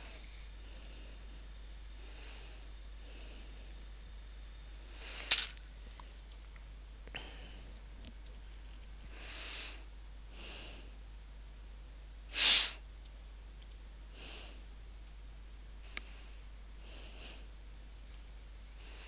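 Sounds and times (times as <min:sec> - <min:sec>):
person breathing: 0:00.0 - 0:03.8, 0:04.9 - 0:05.5, 0:07.2 - 0:07.8, 0:09.1 - 0:11.0, 0:14.1 - 0:14.7, 0:15.8 - 0:17.6, 0:18.7 - 0:19.0
sharp sniff: 0:12.4 - 0:12.8.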